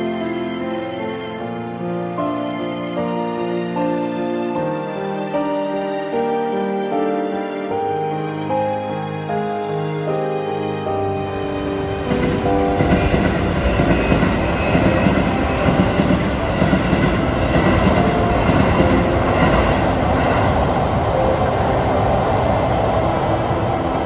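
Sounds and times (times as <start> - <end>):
train wheels clattering over rails: 11.9 - 20.8.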